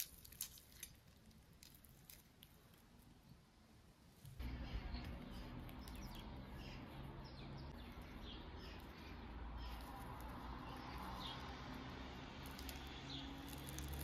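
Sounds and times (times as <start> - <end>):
low steady background hum: 0.0 - 14.0
small birds chirping: 4.4 - 14.0.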